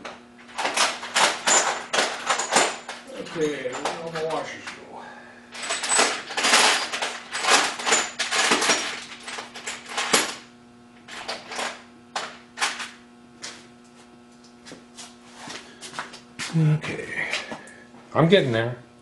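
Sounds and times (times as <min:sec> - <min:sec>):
faint steady hum: 0:00.0 - 0:19.0
metal hardware clattering: 0:00.6 - 0:04.5, 0:05.6 - 0:10.4.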